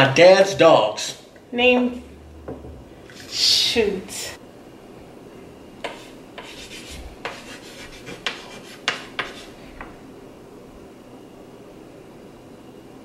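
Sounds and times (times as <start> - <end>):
handwriting strokes on board: 5.8 - 9.6.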